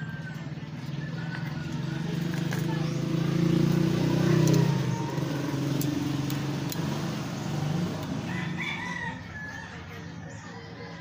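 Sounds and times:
rooster crowing: 8.2 - 9.9.

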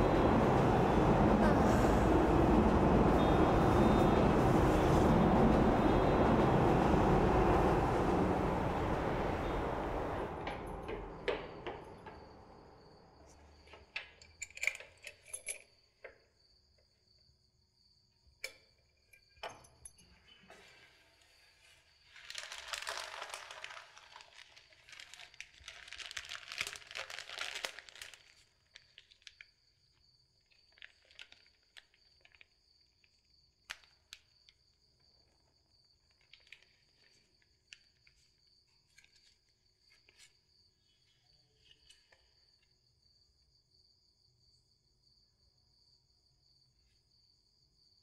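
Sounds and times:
plastic wrapping crinkling: 22.0 - 29.5, 30.4 - 32.6.

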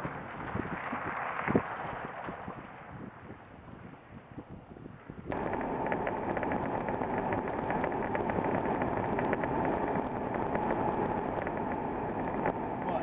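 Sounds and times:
car engine and road noise: 0.0 - 13.0.

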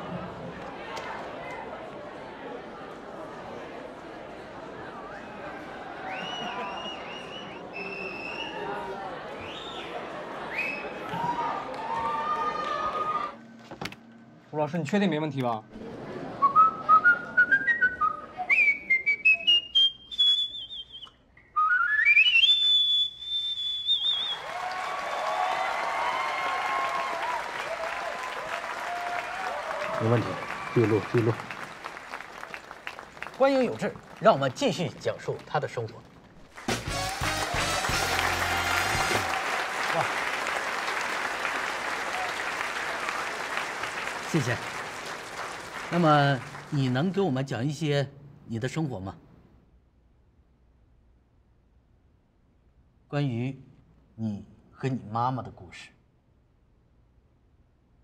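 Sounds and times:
audience applauding: 0.0 - 13.4, 24.0 - 47.4
man whistling: 6.1 - 8.6, 16.4 - 24.5.

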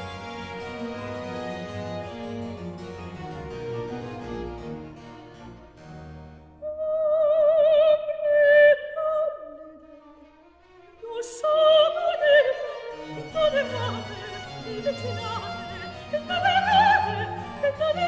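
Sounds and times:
soprano singing opera aria: 6.6 - 10.3, 11.0 - 18.0.

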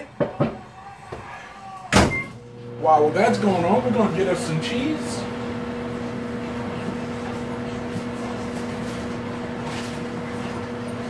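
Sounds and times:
microwave oven hum: 0.3 - 11.0.

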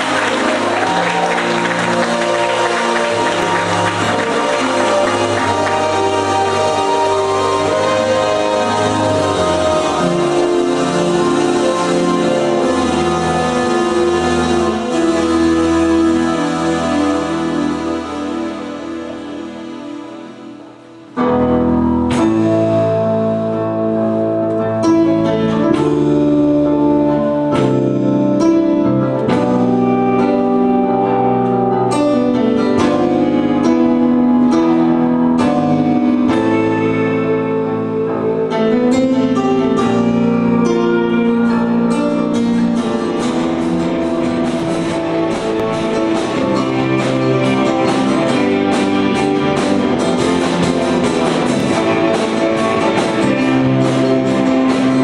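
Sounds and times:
keyboard chords: 0.0 - 55.0
electric guitar: 21.2 - 55.0.

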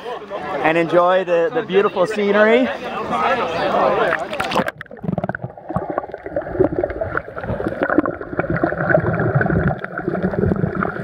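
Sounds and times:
muffled underwater churning: 4.0 - 11.0.

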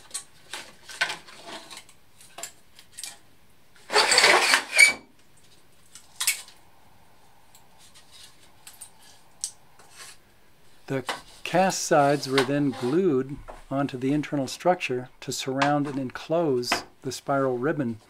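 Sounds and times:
clicks and clatter of handled parts: 0.0 - 3.2
loud scraping rustle: 0.4 - 1.9, 3.8 - 5.1, 11.2 - 13.2.

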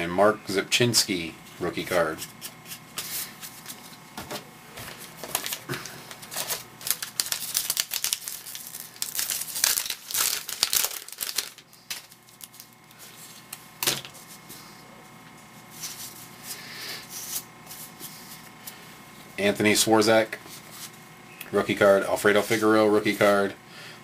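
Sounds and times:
handling of cards: 4.8 - 14.5
wrapper crinkling and tearing: 5.2 - 12.8.

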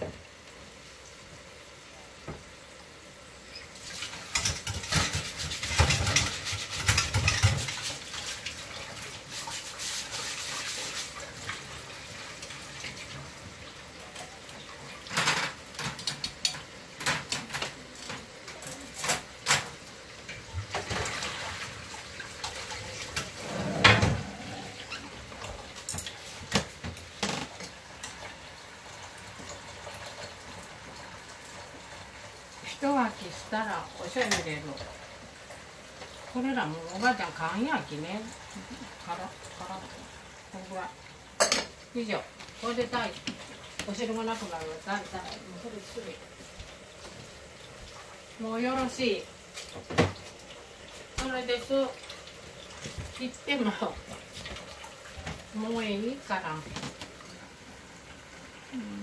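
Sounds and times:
kitchen utensils and pans clattering: 3.8 - 8.6, 14.2 - 21.7, 22.4 - 25.2, 41.4 - 41.8.

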